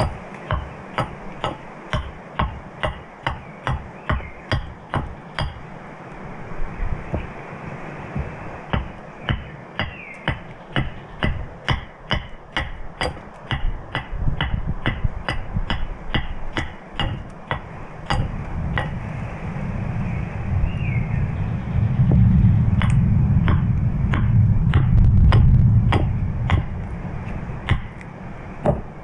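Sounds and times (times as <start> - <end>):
tool knocking into wood: 8.8 - 19.0, 24.2 - 26.7, 27.7 - 28.0, 28.6 - 28.9
low rumble: 17.1 - 29.0.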